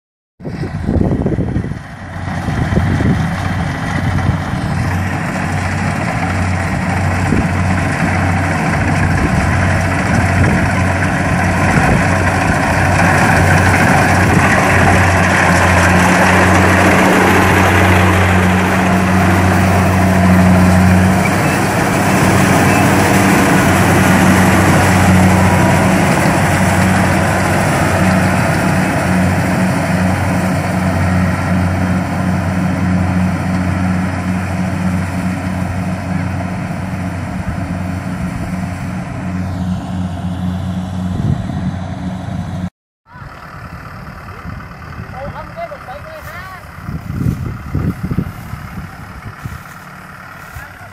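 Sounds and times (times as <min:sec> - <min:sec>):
combine harvester engine hum: 0:00.4 - 0:50.9
threshing machinery rattle: 0:02.1 - 0:38.0.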